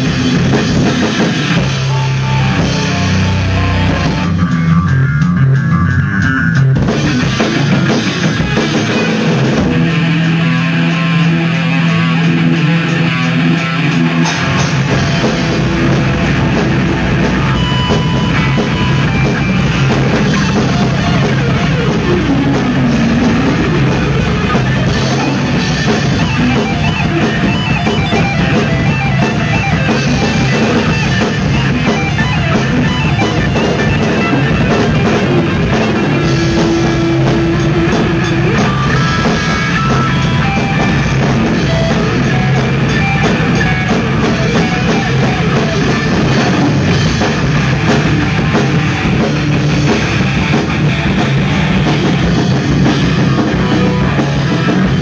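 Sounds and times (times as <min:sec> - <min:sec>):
drum kit: 0:00.0 - 0:55.0
electric guitar: 0:00.0 - 0:55.0.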